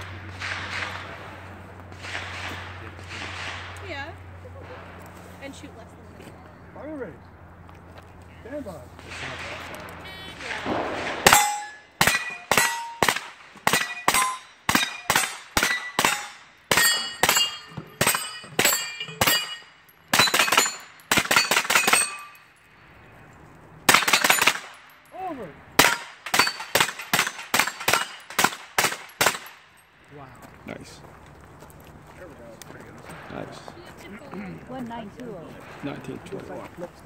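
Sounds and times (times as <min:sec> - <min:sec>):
rapid rifle shots: 0:00.0 - 0:03.8, 0:09.0 - 0:19.5, 0:20.1 - 0:22.2, 0:23.9 - 0:24.8, 0:25.8 - 0:29.6
steel targets ringing: 0:10.0 - 0:22.6, 0:23.9 - 0:29.8.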